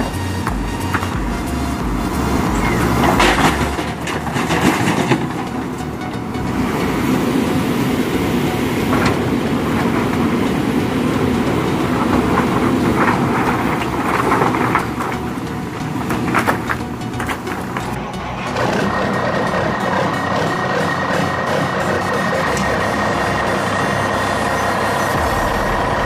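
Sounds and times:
rattling clatter: 0:00.0 - 0:07.2
heavy vehicle engine running: 0:00.0 - 0:26.0.

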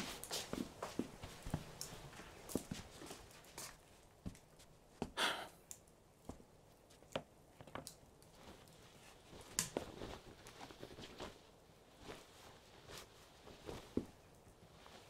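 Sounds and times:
clothing rustling: 0:00.0 - 0:05.0, 0:08.2 - 0:15.0
light footsteps: 0:00.0 - 0:05.2
soft breathy sigh: 0:05.0 - 0:05.7.

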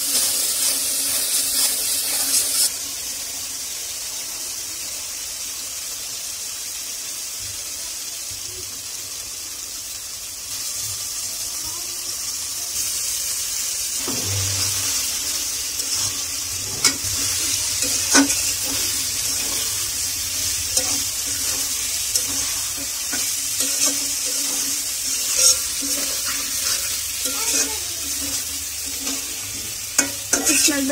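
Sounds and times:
paste sizzling in oil: 0:00.0 - 0:30.9
metal spatula scraping pan: 0:14.0 - 0:30.9.

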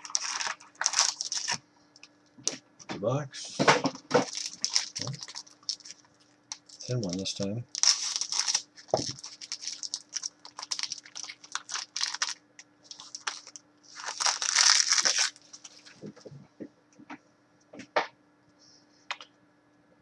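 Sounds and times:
foil wrapper crinkling and tearing: 0:00.0 - 0:01.6, 0:04.1 - 0:16.0.

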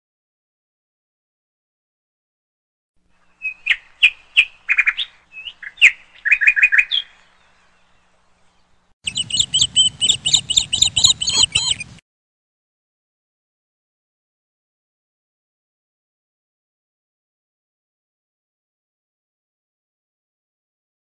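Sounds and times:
parrots chirping: 0:09.0 - 0:12.0.

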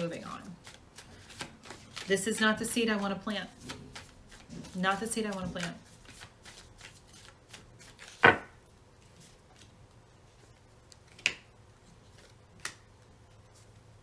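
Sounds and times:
cards clicking on table: 0:12.2 - 0:12.8.

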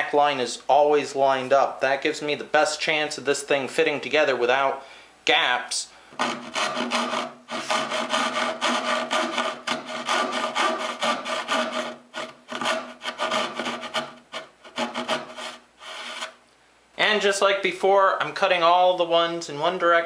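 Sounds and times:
hand saw rasping through wood: 0:06.2 - 0:16.4.

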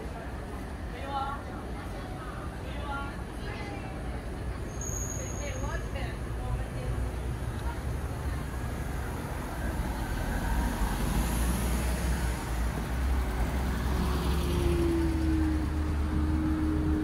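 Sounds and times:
traffic rumble with tyre hiss: 0:00.0 - 0:17.0
passing vehicle engine: 0:08.5 - 0:17.0.

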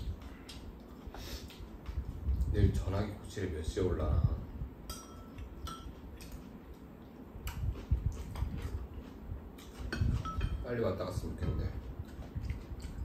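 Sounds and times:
utensils clinking on ceramic bowls: 0:04.9 - 0:06.0, 0:10.0 - 0:10.7.

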